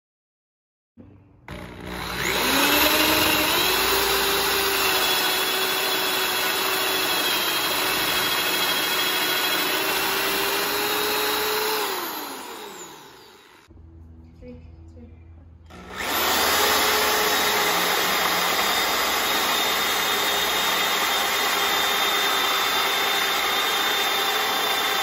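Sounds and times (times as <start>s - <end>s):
electric drill boring wood: 1.5s - 13.7s, 15.7s - 25.0s.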